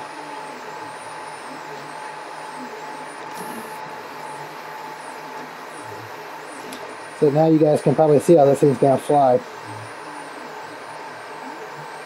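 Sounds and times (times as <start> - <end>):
cooling fans humming: 0.0 - 12.0
stepper motors whining in sweeps: 0.1 - 12.0.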